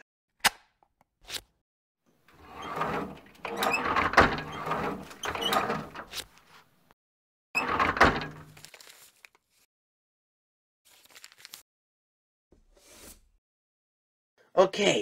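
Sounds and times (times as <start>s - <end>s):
drawer sliding: 2.3s - 6.3s, 7.6s - 8.6s.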